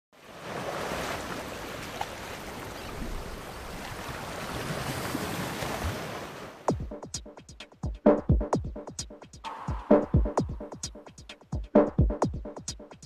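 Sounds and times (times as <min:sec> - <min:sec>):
sea surf rushing: 0:00.2 - 0:06.7
electronic music beats: 0:06.7 - 0:13.0.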